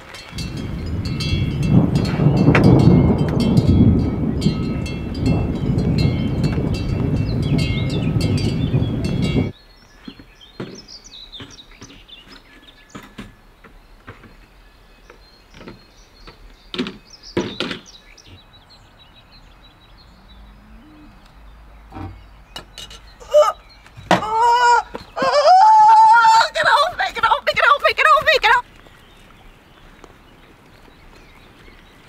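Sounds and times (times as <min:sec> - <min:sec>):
birds chirping: 0:00.0 - 0:32.0
quiet outdoor ambience: 0:09.5 - 0:32.0.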